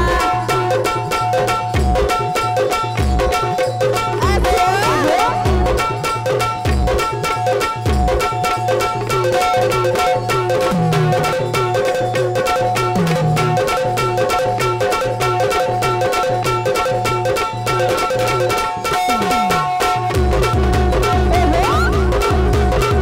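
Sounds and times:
hand drum fast rhythm: 0.0 - 23.0
held keyboard chords: 18.7 - 23.0.

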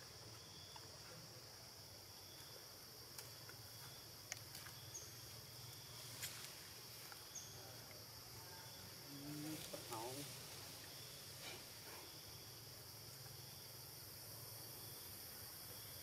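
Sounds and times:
high insect drone: 0.0 - 16.0.

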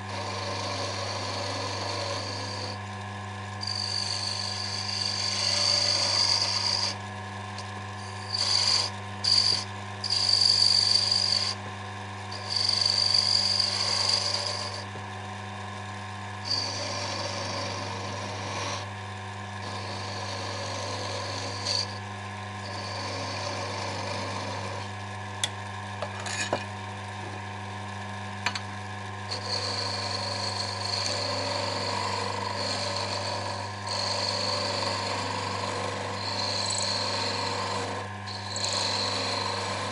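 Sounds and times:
cutting tool hissing on wood: 0.0 - 2.8, 3.6 - 7.0, 8.0 - 11.6, 16.4 - 18.9, 29.3 - 39.9
lathe humming: 0.0 - 39.9.

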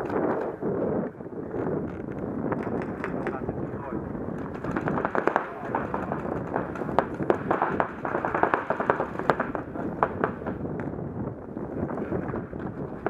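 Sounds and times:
paintball markers firing: 1.8 - 3.4, 4.3 - 10.9.

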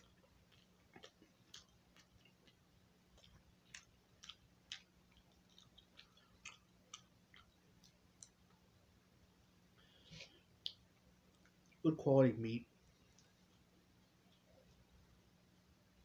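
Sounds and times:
person chewing: 0.0 - 8.7
low steady hum: 0.0 - 16.0.

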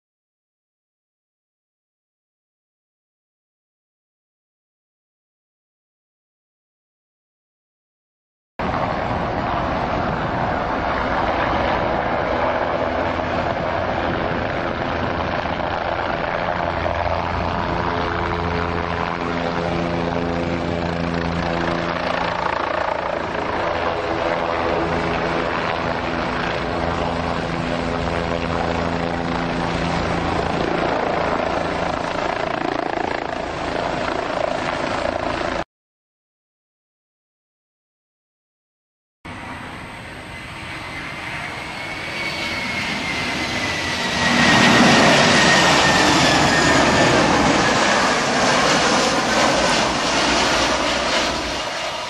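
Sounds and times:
helicopter hovering: 8.6 - 35.6, 39.3 - 52.0.

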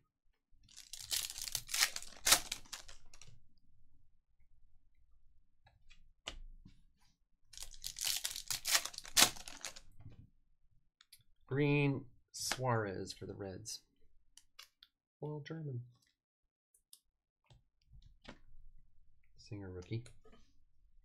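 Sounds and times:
foil packs tearing and crinkling: 0.7 - 3.2, 7.6 - 9.8.

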